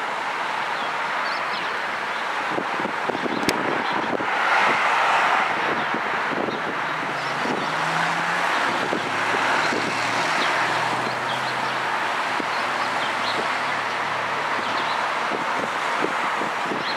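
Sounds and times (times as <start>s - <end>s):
vehicle passing by: 4.2s - 15.7s.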